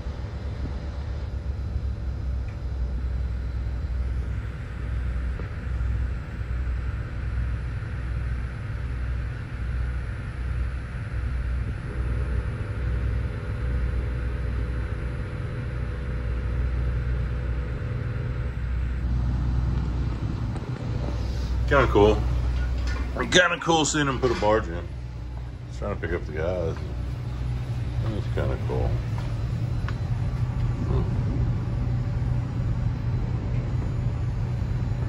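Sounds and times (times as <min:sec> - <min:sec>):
diesel engines rumbling: 0:19.0 - 0:35.0.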